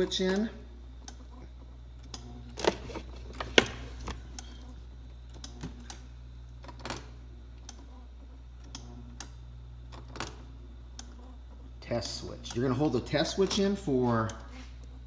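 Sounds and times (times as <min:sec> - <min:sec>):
fridge low hum: 0:00.0 - 0:15.0.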